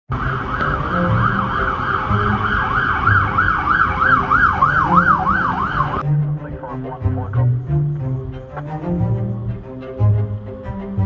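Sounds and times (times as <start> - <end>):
fire engine siren yelping: 0.1 - 6.0.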